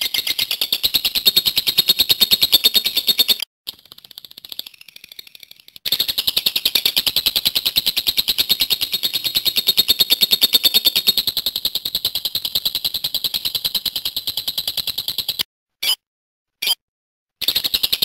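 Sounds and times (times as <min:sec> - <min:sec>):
lovebird chattering song: 0:00.0 - 0:03.4.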